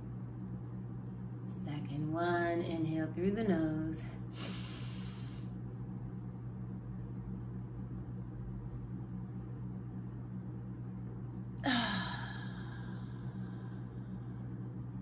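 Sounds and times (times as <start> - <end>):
low hum: 0.0 - 15.0
woman sighing: 11.6 - 13.8.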